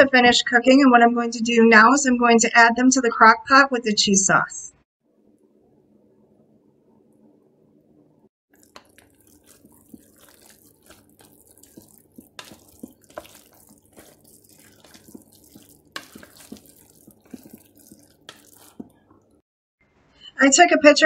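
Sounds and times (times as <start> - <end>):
spoon mixing thick sauce: 8.5 - 19.4
spoon knocking and scraping pot: 8.6 - 19.2.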